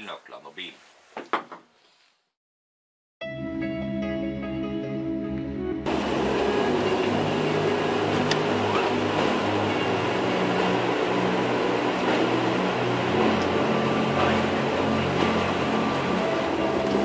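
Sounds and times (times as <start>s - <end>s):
jet engine roar inside cabin: 5.9s - 17.0s.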